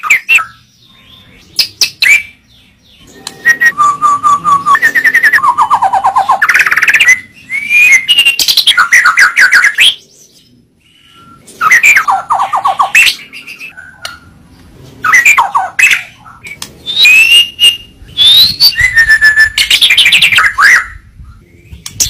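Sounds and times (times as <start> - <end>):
bird singing varied phrases: 0.0 - 22.0.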